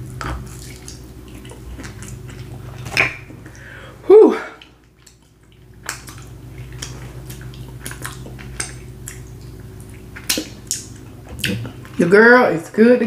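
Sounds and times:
lip smacks: 4.6 - 12.0.

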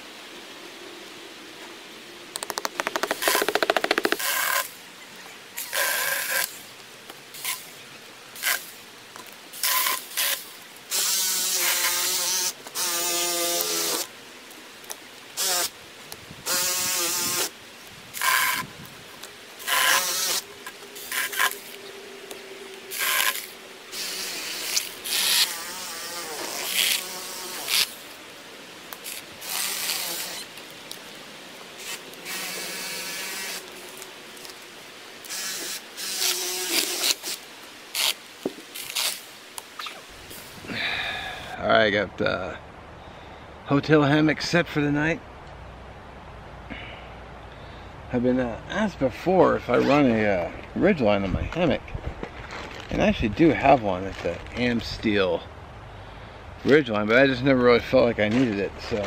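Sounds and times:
cordless power tool buzzing: 9.6 - 14.1, 19.6 - 21.8, 22.9 - 28.0, 29.0 - 30.5, 31.8 - 33.8, 35.2 - 37.4.

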